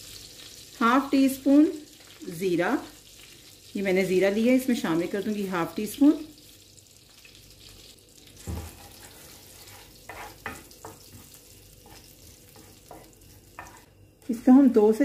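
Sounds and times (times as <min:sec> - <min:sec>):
seeds sizzling in hot oil: 0:00.0 - 0:14.6
wooden spatula knocking pan: 0:10.1 - 0:13.8.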